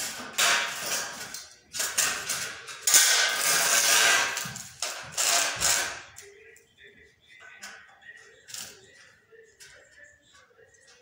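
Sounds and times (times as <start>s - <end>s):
metal clattering and scraping: 0.0s - 6.1s.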